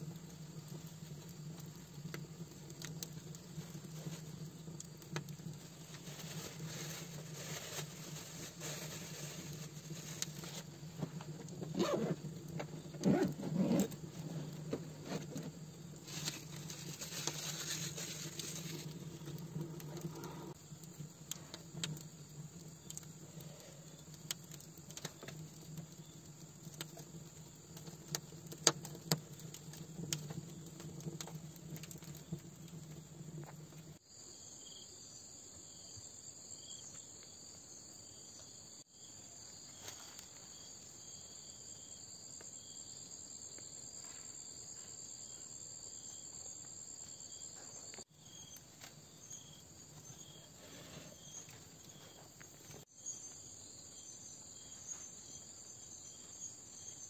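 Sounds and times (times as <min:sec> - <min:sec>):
wood fire crackling: 0:00.0 - 0:34.0, 0:46.0 - 0:57.0
insects chorus: 0:00.0 - 0:57.0.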